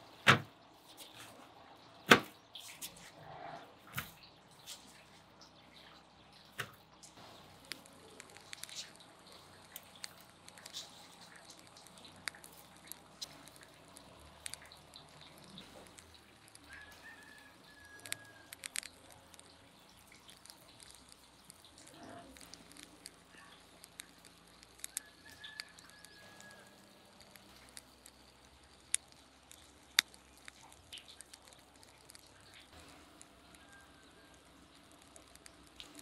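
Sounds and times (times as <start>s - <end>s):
sharp clicks: 6.6s - 36.0s
liquid pouring over meat: 7.4s - 36.0s.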